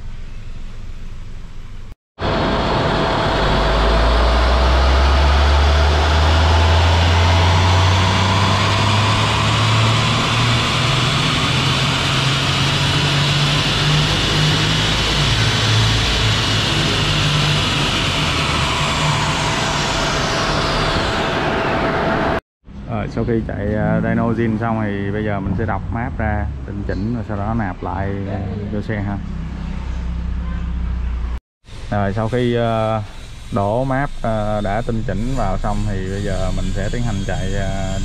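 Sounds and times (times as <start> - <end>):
car engine revving under load: 2.2 - 22.4
high whine: 2.2 - 30.1, 31.7 - 38.0.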